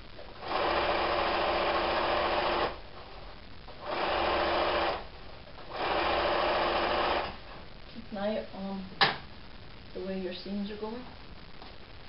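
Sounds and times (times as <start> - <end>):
sewing machine stitching: 0.4 - 2.8, 3.8 - 5.0, 5.7 - 7.4.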